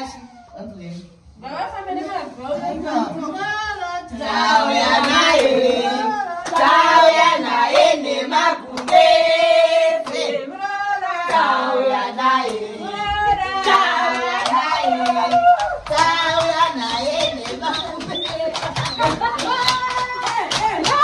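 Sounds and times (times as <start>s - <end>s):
women singing together: 1.5s - 21.0s
handclaps: 6.4s - 6.8s, 8.8s - 9.1s, 10.0s - 10.3s, 13.6s - 21.0s.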